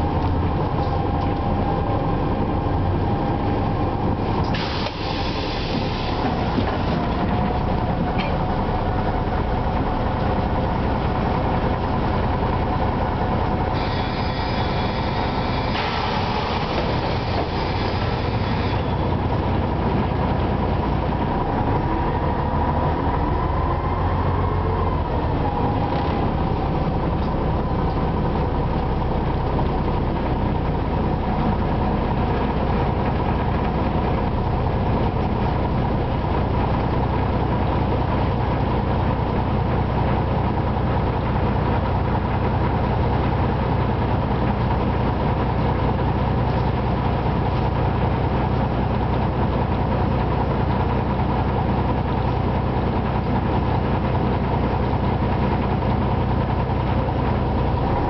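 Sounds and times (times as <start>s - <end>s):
bus diesel engine running: 0.0s - 58.0s
hiss: 4.5s - 6.5s, 13.8s - 19.1s.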